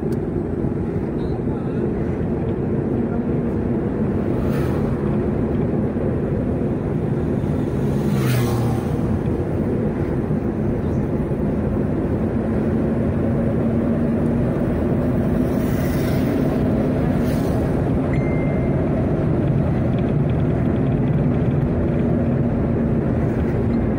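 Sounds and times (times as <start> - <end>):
road noise: 0.0 - 23.9
vehicle engine drone: 0.0 - 23.9.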